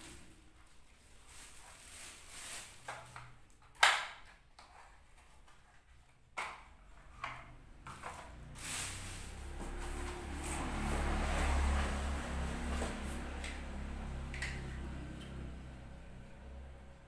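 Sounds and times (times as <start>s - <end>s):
plastic bag rustling: 0.0s - 3.4s, 8.0s - 13.9s.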